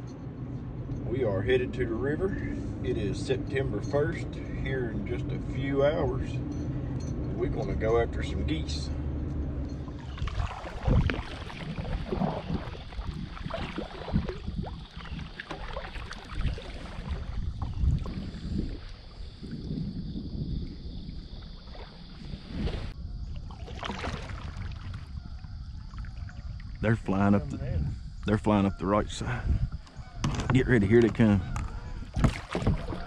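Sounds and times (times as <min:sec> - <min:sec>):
water splashing off paddle: 0:09.8 - 0:19.7, 0:21.1 - 0:25.1, 0:32.1 - 0:33.0
paddle knocking plastic hull: 0:09.9 - 0:18.3, 0:30.2 - 0:33.0.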